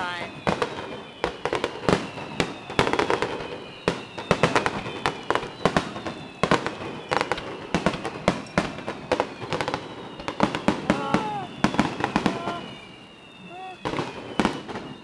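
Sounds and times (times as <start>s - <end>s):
fireworks bangs and crackles: 0.0s - 15.0s.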